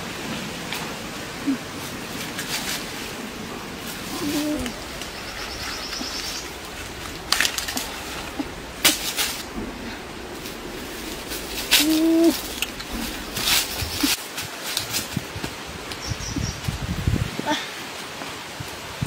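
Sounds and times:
leaves and twigs rustling: 0.0 - 19.0
outdoor hiss: 0.0 - 19.0
dove cooing: 3.6 - 14.2
faint high bird trill: 4.1 - 6.6.

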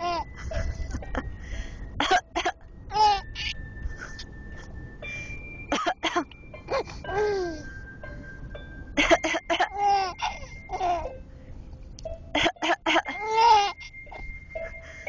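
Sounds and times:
baby laughing and cooing: 0.0 - 1.2, 2.9 - 3.6, 9.0 - 11.1, 12.4 - 13.9
car cabin rumble: 0.0 - 15.0.

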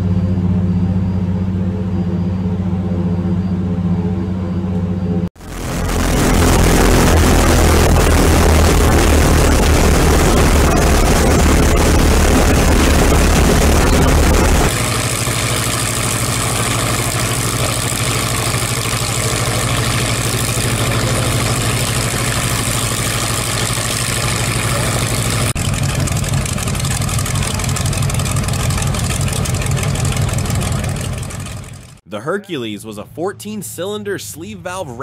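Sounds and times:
radial aircraft engine running: 0.0 - 32.0.

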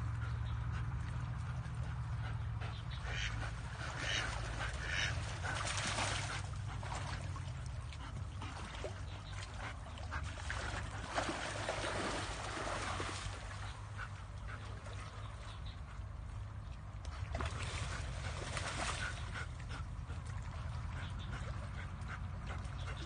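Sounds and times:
low steady hum: 0.0 - 23.0
ducks quacking: 2.1 - 5.6
water splashing: 3.1 - 15.4, 17.0 - 23.0.

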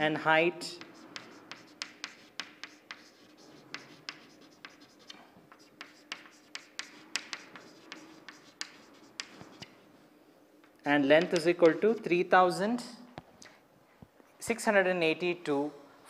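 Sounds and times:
faint steady hum: 0.0 - 16.0
chalk tapping and scraping: 0.7 - 9.8, 11.2 - 12.1.

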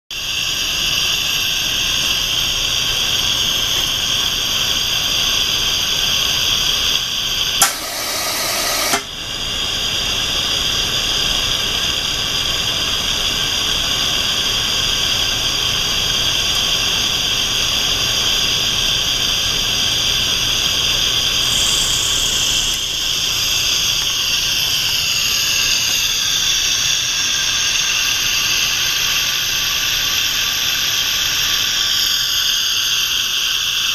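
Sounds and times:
gas venting hiss: 0.2 - 33.9
loud rush of gas: 7.6 - 9.2.

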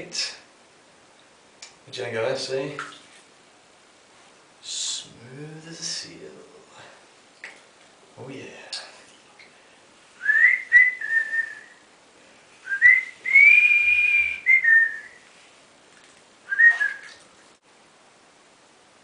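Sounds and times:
person whistling a tune: 10.2 - 11.8, 12.7 - 15.2, 16.5 - 17.2.

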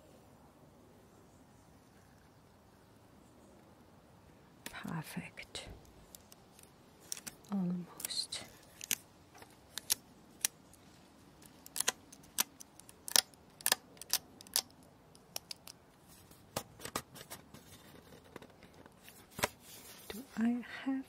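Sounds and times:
tape peeling off metal tin: 6.0 - 15.8.

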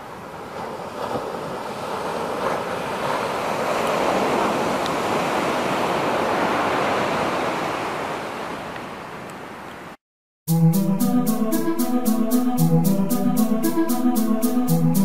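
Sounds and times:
sea surf breaking on beach: 0.0 - 9.6.

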